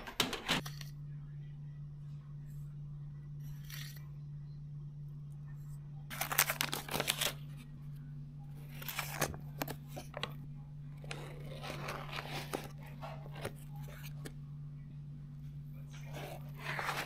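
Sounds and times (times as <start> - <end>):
low hum: 0.0 - 17.0
foil wrapper crinkling and tearing: 6.1 - 7.5.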